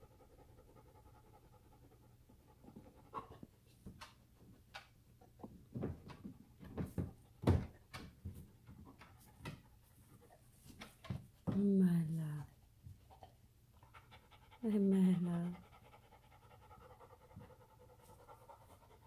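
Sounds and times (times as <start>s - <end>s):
paws knocking on plastic: 3.8s - 9.7s.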